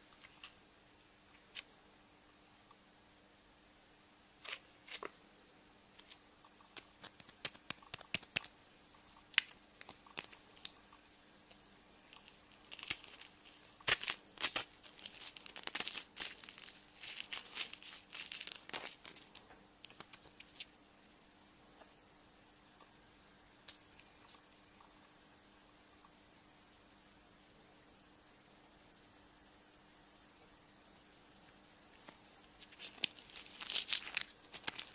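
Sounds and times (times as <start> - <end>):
foil wrapper crinkling and tearing: 9.3 - 10.8, 12.1 - 20.7, 32.0 - 34.9.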